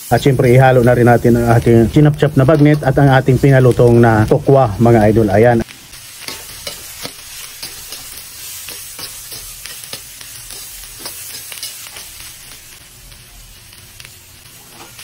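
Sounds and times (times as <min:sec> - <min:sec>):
frying sizzle: 0:00.0 - 0:15.0
ladle scraping and clinking on wok: 0:06.2 - 0:12.2.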